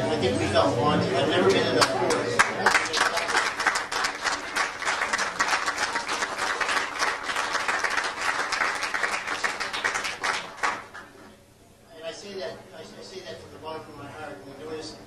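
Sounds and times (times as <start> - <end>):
audience applauding: 1.8 - 11.1.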